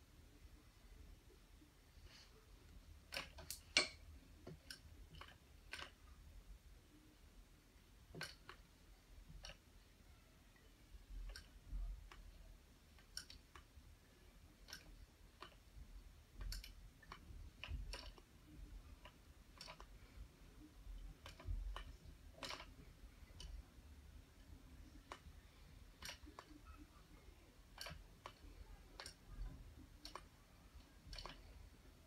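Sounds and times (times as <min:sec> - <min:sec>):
faint metal clicks: 0:24.3 - 0:31.9.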